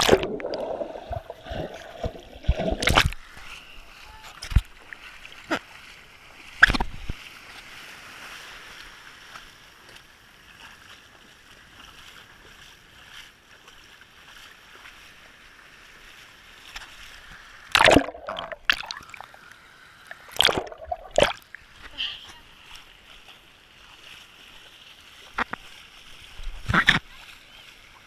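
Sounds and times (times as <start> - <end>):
camera splashing into water: 0.0 - 3.2, 17.7 - 19.2, 20.3 - 21.4
loud splashing: 0.0 - 3.3, 17.7 - 19.2, 20.3 - 21.4.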